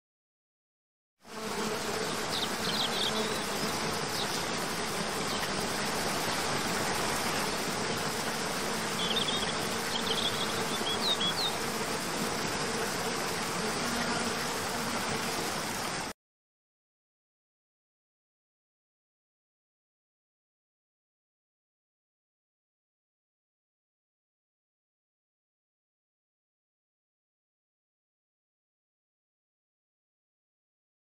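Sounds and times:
buzzing insect hum: 1.3 - 16.1
falling water rushing: 2.2 - 16.1
high bird chirps: 9.0 - 11.5.

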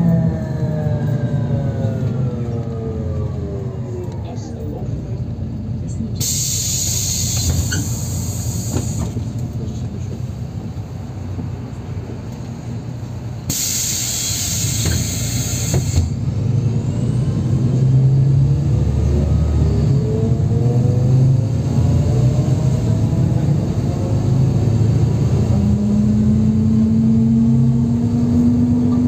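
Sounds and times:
bus engine and road rumble: 0.0 - 29.0
compressed air hiss: 6.2 - 9.1, 13.5 - 16.1.

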